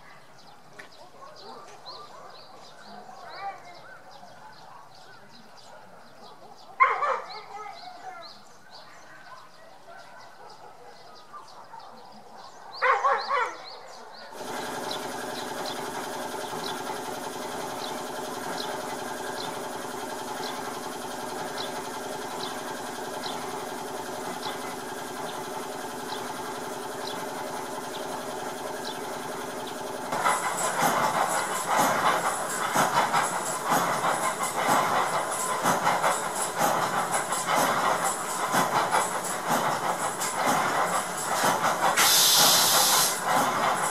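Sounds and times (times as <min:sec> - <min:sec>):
machine humming with ticks: 0:14.4 - 0:43.9.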